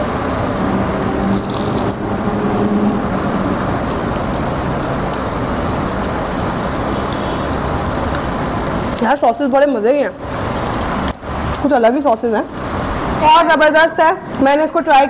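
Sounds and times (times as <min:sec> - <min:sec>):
low engine hum: 0:00.0 - 0:09.0
road traffic din: 0:00.0 - 0:15.0.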